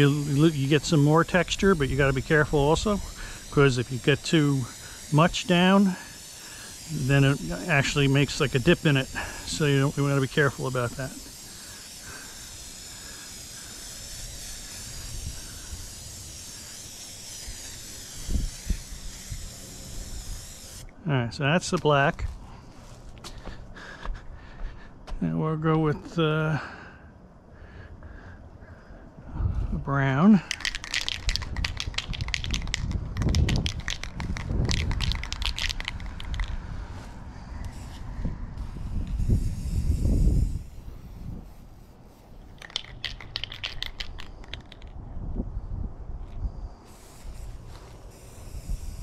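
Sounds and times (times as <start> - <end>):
spray can hissing: 0.0 - 20.9, 30.4 - 45.0, 46.8 - 49.0
wind rumble on microphone: 17.5 - 20.6, 29.2 - 29.9, 31.2 - 41.8, 42.9 - 49.0.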